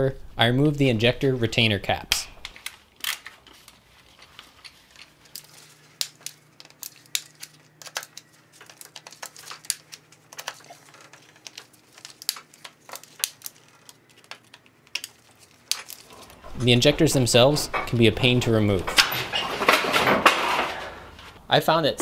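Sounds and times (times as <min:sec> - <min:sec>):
hand tools tapping on metal: 0:16.0 - 0:20.8.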